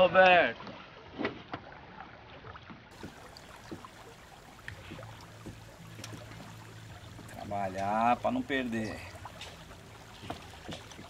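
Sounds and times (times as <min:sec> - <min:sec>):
river water: 0:00.0 - 0:11.0
low hum: 0:03.0 - 0:11.0.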